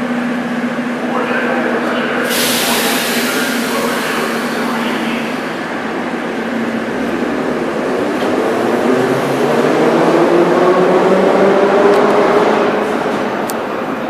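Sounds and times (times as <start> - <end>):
metro train pulling out: 0.0 - 14.0
sudden air hiss: 2.2 - 5.4.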